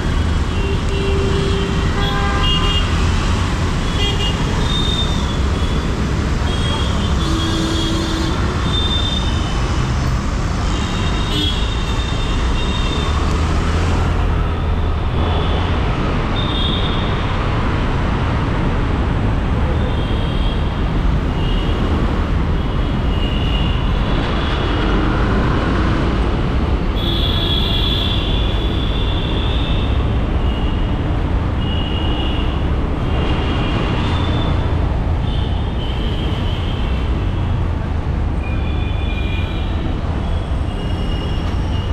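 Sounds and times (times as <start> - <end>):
road traffic: 0.0 - 41.9.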